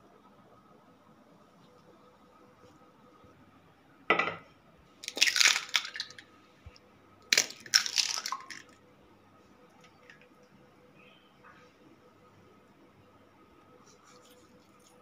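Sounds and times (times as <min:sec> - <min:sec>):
eggshell cracking: 0:05.0 - 0:06.2, 0:07.3 - 0:08.7
eggshell crackling apart: 0:05.0 - 0:06.2, 0:07.3 - 0:08.7.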